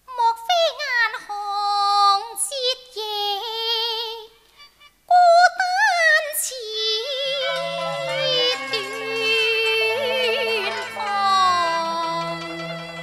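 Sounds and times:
woman singing opera with vibrato: 0:00.1 - 0:04.4, 0:05.1 - 0:13.0
low sustained accompaniment notes: 0:07.0 - 0:13.0.

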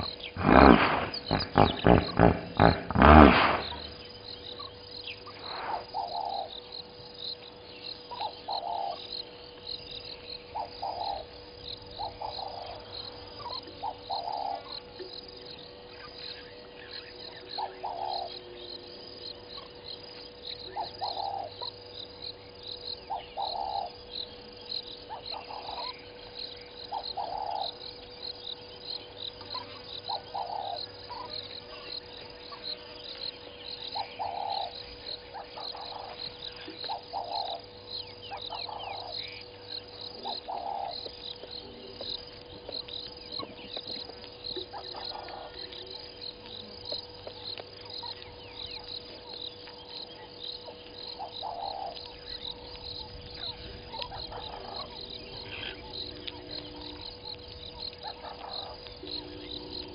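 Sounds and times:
quick bird chirps: 0:00.0 - 0:04.1
short low calls: 0:00.0 - 0:04.1
faint steady hum: 0:00.0 - 0:59.9
insect chirping high-pitched: 0:00.0 - 0:59.9.

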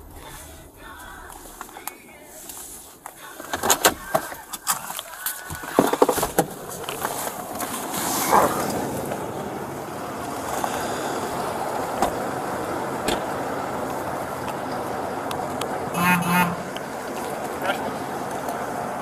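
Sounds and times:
road traffic: 0:00.0 - 0:19.0
car door shutting: 0:11.9 - 0:12.2, 0:13.0 - 0:13.4.

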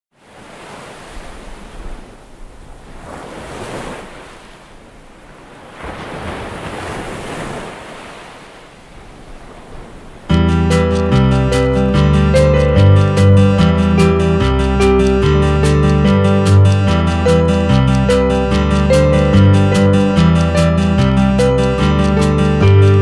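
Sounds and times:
ocean waves washing in: 0:00.1 - 0:23.0
strummed acoustic guitar music: 0:10.3 - 0:23.0.

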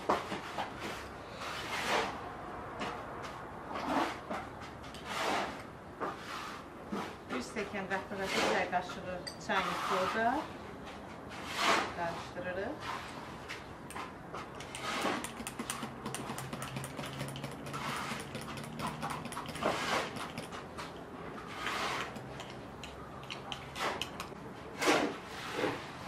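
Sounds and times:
metal spoon scraping glass: 0:14.5 - 0:24.4.

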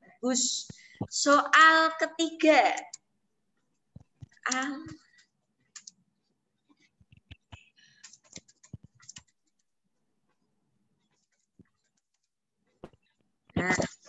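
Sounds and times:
keyboard typing clicks: 0:04.2 - 0:06.0, 0:07.1 - 0:09.7.

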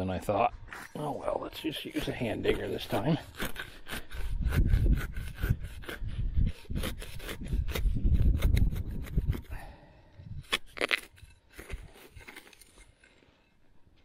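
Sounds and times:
serrated digger sawing soil: 0:00.7 - 0:09.7.

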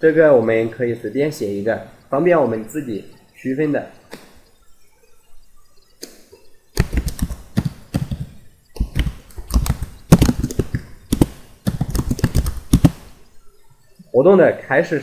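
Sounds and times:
keyboard typing: 0:06.8 - 0:13.4.

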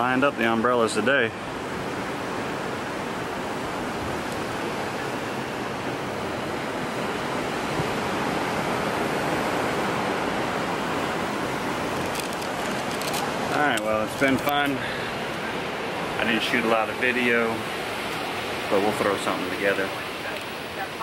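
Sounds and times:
ocean waves breaking: 0:00.0 - 0:21.0.

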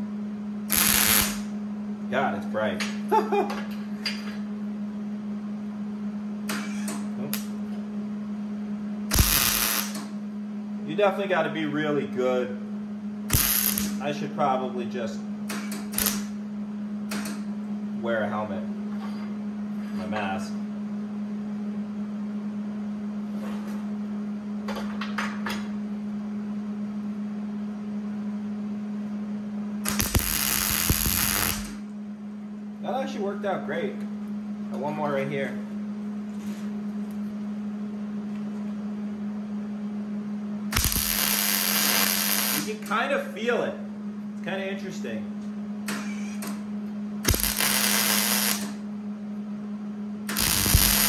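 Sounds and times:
welder humming: 0:00.0 - 0:01.6, 0:06.5 - 0:07.6, 0:09.0 - 0:10.2, 0:13.3 - 0:14.8, 0:15.5 - 0:16.4, 0:29.8 - 0:31.9, 0:40.7 - 0:42.8, 0:47.2 - 0:48.9, 0:50.3 - 0:51.0
welder electrical hum: 0:00.0 - 0:51.0
welder sharp crackles: 0:00.7 - 0:01.5, 0:09.1 - 0:10.0, 0:13.3 - 0:14.0, 0:15.9 - 0:16.3, 0:29.8 - 0:31.8, 0:40.7 - 0:42.8, 0:47.2 - 0:48.8, 0:50.3 - 0:51.0.

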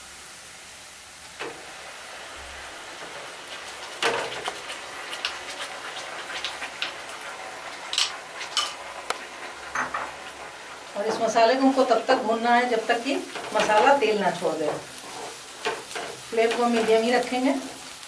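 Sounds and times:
onions sizzling in oil: 0:00.0 - 0:18.0
spatula knocking and scraping pot: 0:04.0 - 0:11.4.

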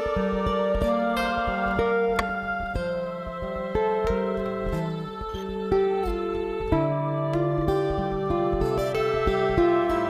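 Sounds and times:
plucked string melody: 0:00.0 - 0:10.0.

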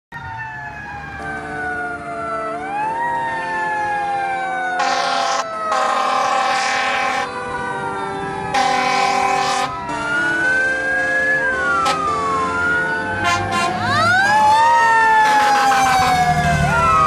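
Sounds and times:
fire engine siren wailing: 0:00.1 - 0:17.0
horn blasts: 0:04.8 - 0:07.4, 0:08.5 - 0:10.0, 0:11.8 - 0:12.2, 0:13.2 - 0:14.0.

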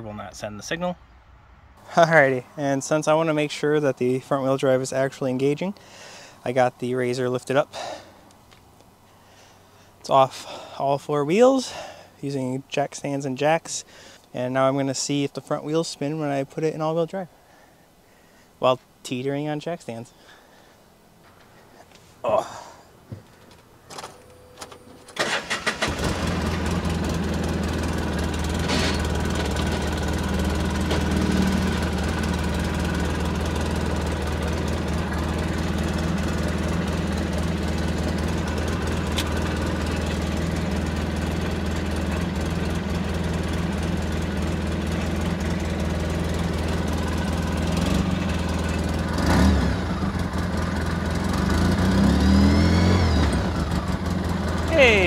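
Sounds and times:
engine cranking and idling: 0:23.3 - 0:55.0
engine revving: 0:25.2 - 0:55.0.

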